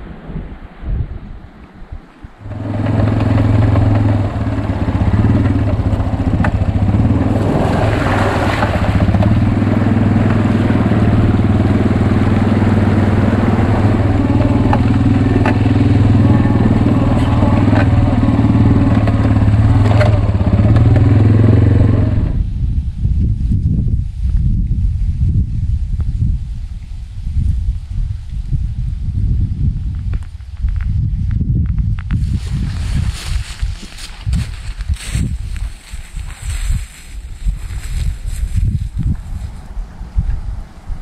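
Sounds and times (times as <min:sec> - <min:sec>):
rushing surge: 0:02.4 - 0:22.4
off-road vehicle engine running: 0:02.4 - 0:23.4, 0:32.0 - 0:41.0
knocks and clatters over bumps: 0:02.5 - 0:21.5.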